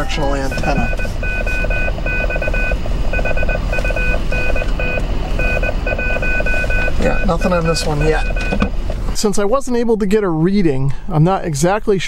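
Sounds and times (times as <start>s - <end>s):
high radio tones beeping: 0.0s - 8.6s.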